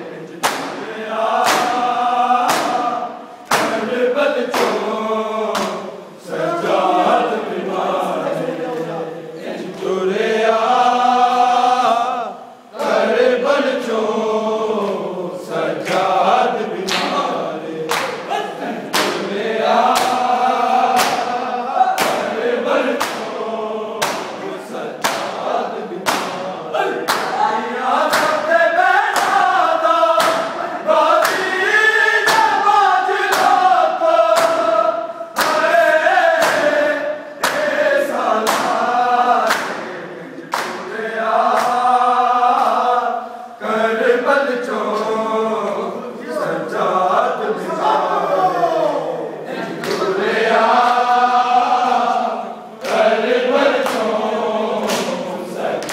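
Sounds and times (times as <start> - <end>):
men chanting together: 0.0 - 55.9
hands slapping chests: 0.4 - 3.9, 4.5 - 4.9, 5.5 - 5.8, 16.8 - 17.2, 17.9 - 18.3, 18.9 - 19.3, 19.9 - 21.3, 22.0 - 22.3, 22.9 - 23.3, 24.0 - 24.4, 25.0 - 25.4, 26.0 - 26.4, 27.0 - 27.4, 28.0 - 28.5, 29.1 - 29.4, 30.1 - 30.6, 31.2 - 31.6, 32.2 - 32.6, 33.3 - 33.6, 34.2 - 34.7, 35.4 - 35.7, 36.4 - 36.8, 37.4 - 37.8, 38.4 - 38.8, 39.4 - 41.9, 53.7 - 54.2, 54.8 - 55.2.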